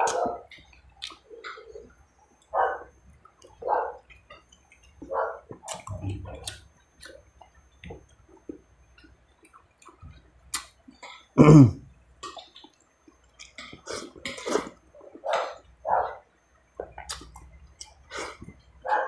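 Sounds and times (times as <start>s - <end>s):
wet chewing: 0.0s - 1.8s, 3.2s - 11.2s, 16.8s - 18.6s
lip-smacking clicks: 5.5s - 7.6s, 16.9s - 18.0s.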